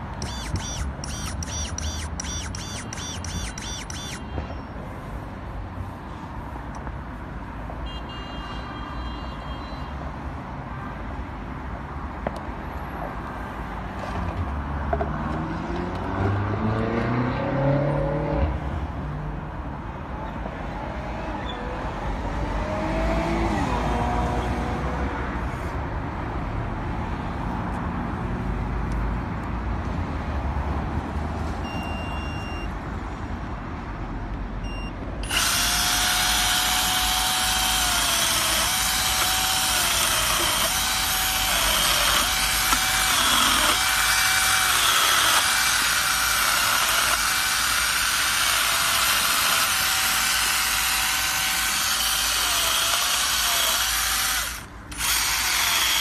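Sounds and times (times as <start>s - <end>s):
electric chainsaw cutting branch: 0.0s - 4.3s, 35.2s - 56.0s
road traffic rumble: 0.0s - 56.0s.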